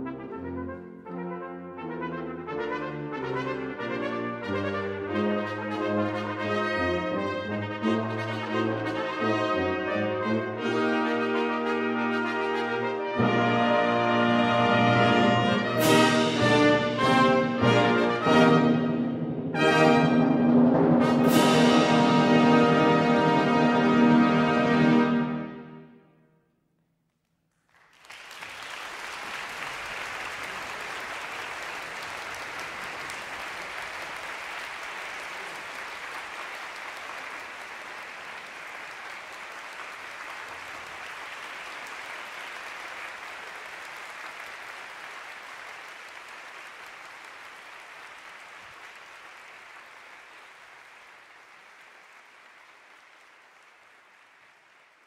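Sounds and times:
audience applauding: 27.5 - 55.0.

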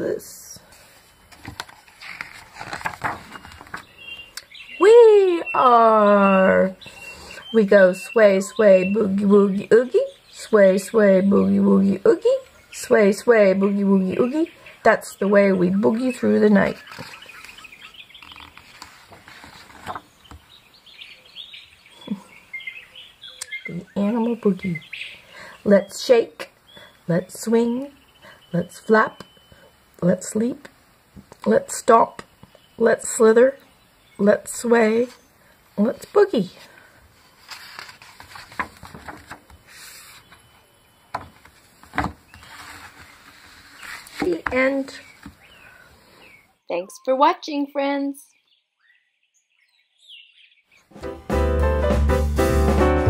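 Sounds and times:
birds chirping: 0.0 - 30.7, 31.4 - 37.0, 37.8 - 50.9
book page turning: 0.7 - 4.3, 15.9 - 20.4, 37.2 - 40.5, 41.1 - 45.4.

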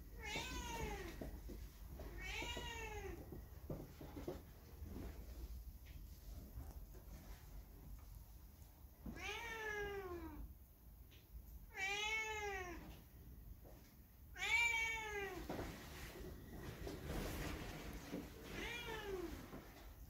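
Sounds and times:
cat meowing: 0.2 - 1.2, 2.1 - 3.2, 9.1 - 10.4, 11.7 - 12.9, 14.3 - 15.5, 18.4 - 19.4.

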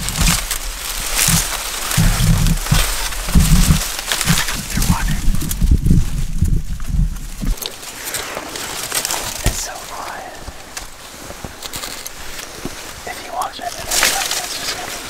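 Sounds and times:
low rumble on microphone: 0.0 - 7.8
dry stalks rustling and crackling: 0.0 - 15.0
soft whispers: 1.3 - 5.6, 8.0 - 11.9, 12.8 - 15.0.

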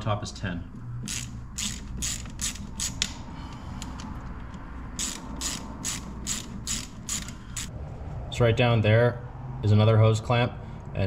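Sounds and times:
ratchet wrench clicking: 1.0 - 3.2, 3.8 - 7.7.

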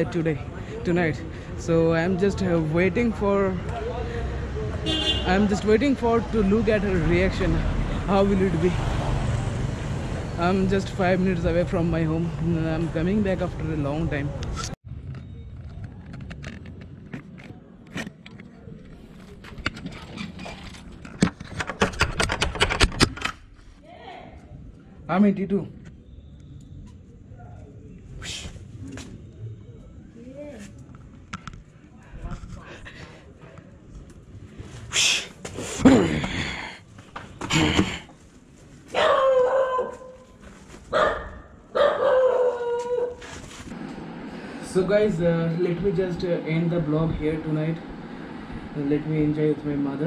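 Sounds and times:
dog barking: 38.9 - 40.2, 40.9 - 43.2.

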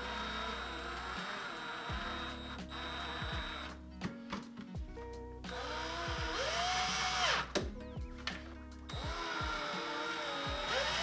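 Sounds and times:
cordless drill driving screws: 0.0 - 3.8, 5.5 - 7.6, 8.9 - 11.0.

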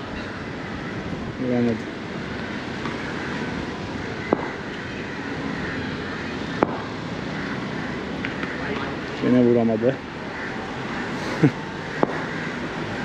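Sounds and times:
outdoor street noise: 0.0 - 13.0
sharp knocks: 4.3 - 4.6, 12.0 - 12.3.

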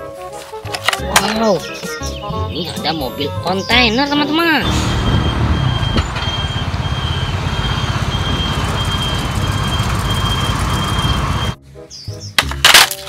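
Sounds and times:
diesel engine rumble: 4.5 - 11.6.

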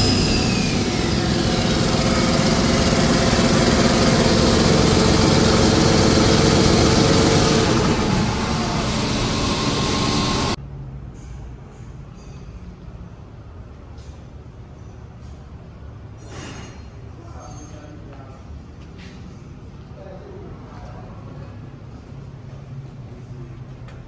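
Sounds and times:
diesel engine running: 0.0 - 10.6.

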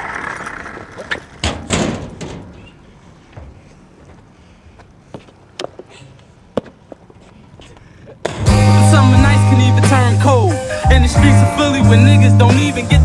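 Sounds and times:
hip-hop music with heavy bass: 8.3 - 13.0.

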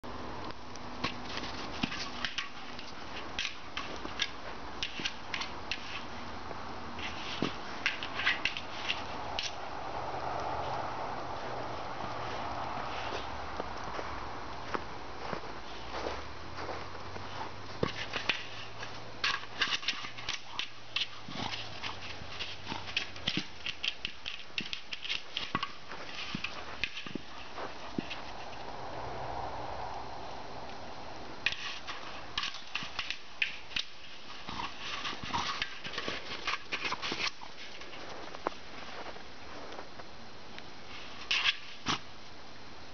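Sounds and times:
footsteps crunching in snow: 12.1 - 20.1, 24.4 - 28.7, 33.5 - 40.2.

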